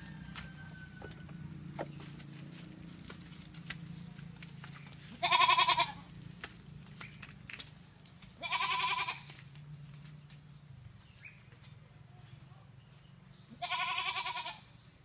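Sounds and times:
goat bleating: 5.1s - 6.1s, 8.4s - 9.3s, 13.6s - 14.6s.

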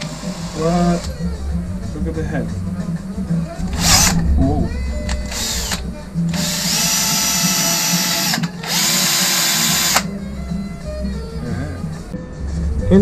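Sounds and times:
cordless drill motor whine: 5.2s - 10.1s.

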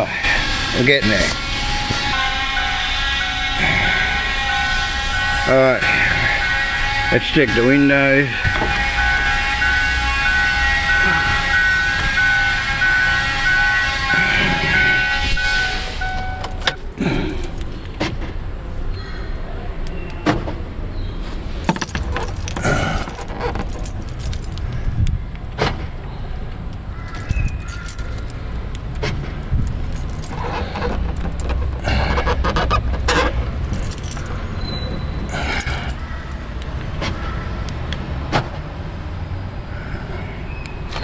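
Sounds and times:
car door clicks and rattles: 21.7s - 34.4s, 38.3s - 38.6s.

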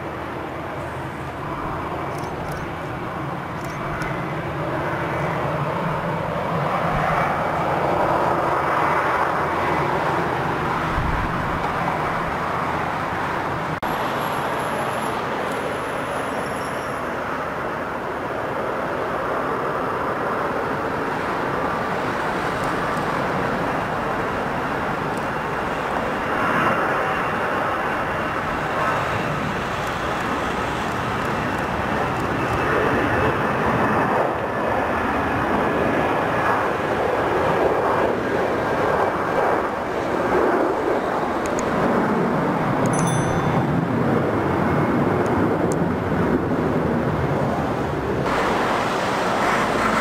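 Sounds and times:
jet engines running: 0.0s - 50.0s
wind on microphone: 1.2s - 13.8s.

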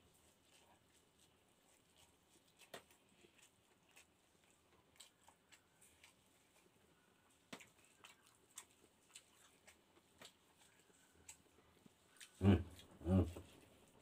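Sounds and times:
person humming: 12.4s - 13.4s.

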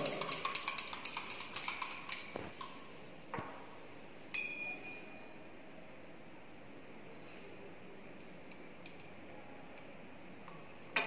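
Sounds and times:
glassware clinking: 0.0s - 2.9s, 4.3s - 5.2s
glass rod tapping beaker: 0.0s - 3.0s, 4.3s - 5.1s.

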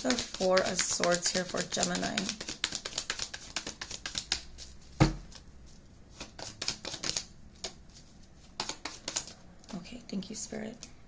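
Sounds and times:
cards being shuffled: 0.0s - 9.8s.

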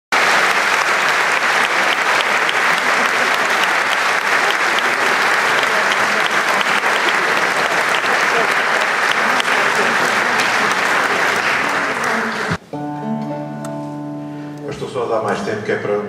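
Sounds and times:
audience applauding: 0.1s - 12.6s.

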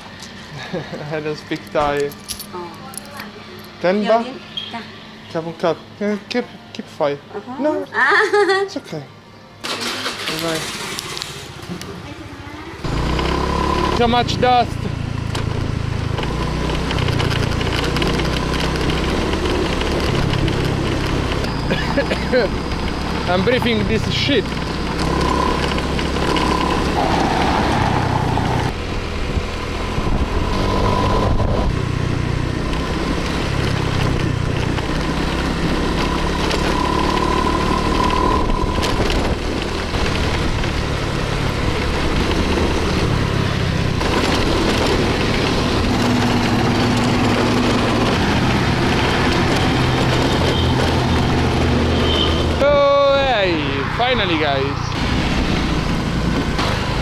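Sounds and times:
scooter engine running: 9.7s - 53.7s
wind noise: 26.3s - 32.2s, 36.7s - 40.8s.

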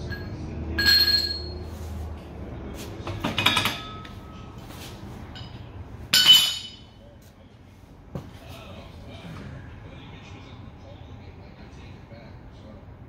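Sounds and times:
metal clinks and clanks: 0.0s - 1.6s.

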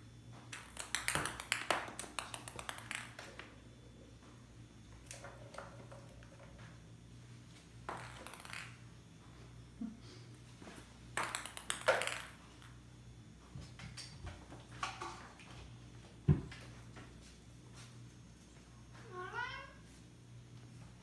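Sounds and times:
plastic balls clicking in a track: 0.5s - 3.5s, 11.2s - 12.8s.

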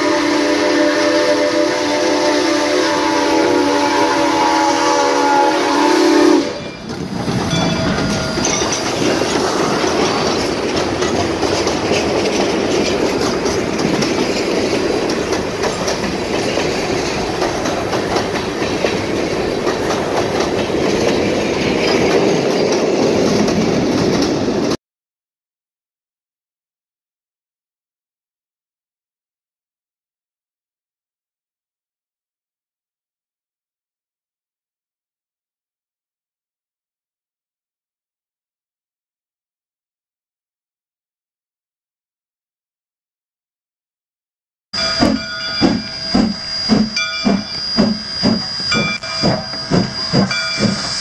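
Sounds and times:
steam whistle chord: 0.0s - 6.8s, 44.8s - 51.0s
train wheels on rails: 0.0s - 24.8s, 44.8s - 51.0s.

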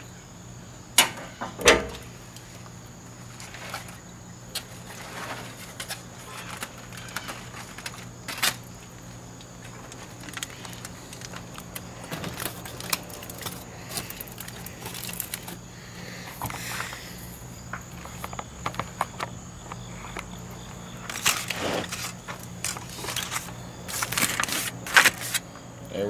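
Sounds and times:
aluminium foil crinkling: 2.3s - 25.5s.

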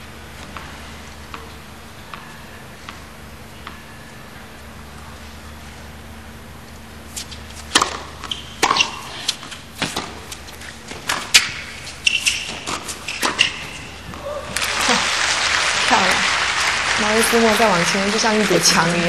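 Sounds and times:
crowd hum: 0.0s - 19.0s
short high squeaks: 7.2s - 9.2s, 11.2s - 14.0s.

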